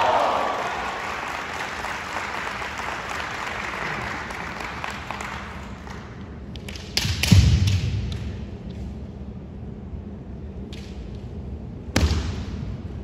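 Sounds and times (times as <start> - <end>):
applause: 0.0 - 6.1.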